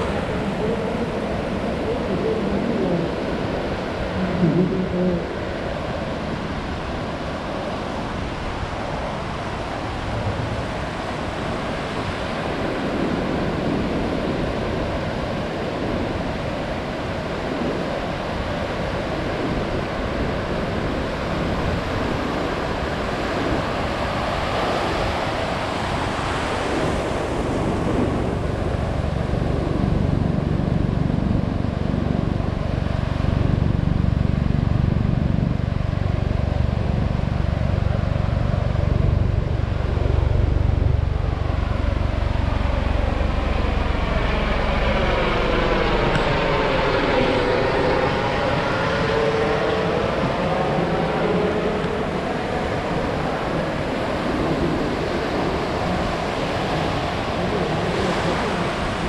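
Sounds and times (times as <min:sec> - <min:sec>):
surf washing up a beach: 0:00.0 - 0:59.0
deep low rumble: 0:27.5 - 0:50.4.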